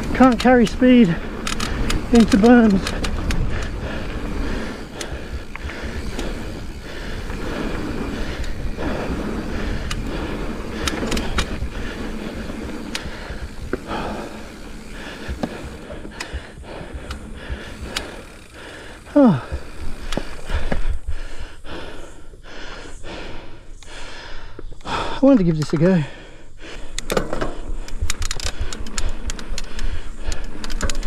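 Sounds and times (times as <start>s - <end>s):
bike clicks and rattles: 0.0s - 31.0s
bike tyre noise on dirt: 0.0s - 31.0s
wind rumble on microphone: 0.8s - 15.9s.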